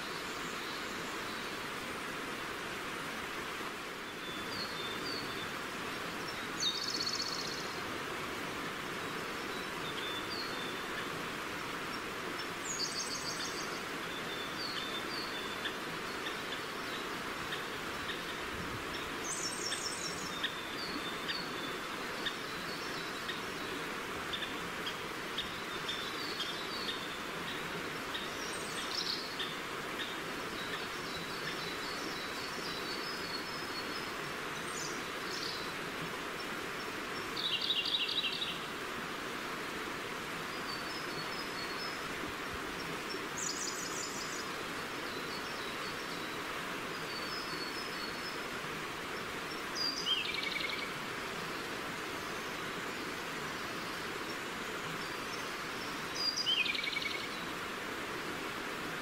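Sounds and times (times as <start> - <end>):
river flowing: 0.0 - 59.0
songbirds chirping: 0.0 - 59.0.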